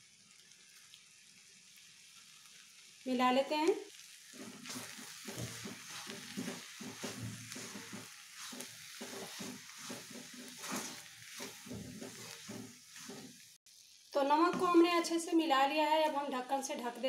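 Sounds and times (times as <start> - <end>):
frying sizzle: 0.0 - 17.0
wooden spatula scraping metal pan: 4.3 - 13.6.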